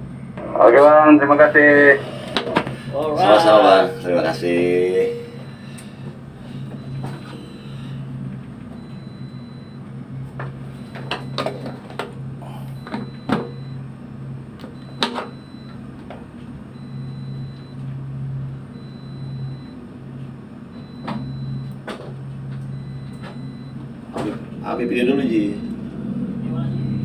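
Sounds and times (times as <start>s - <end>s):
low hum of ship engines: 0.0s - 27.0s
faint high-pitched beep: 5.0s - 5.7s, 26.6s - 27.0s.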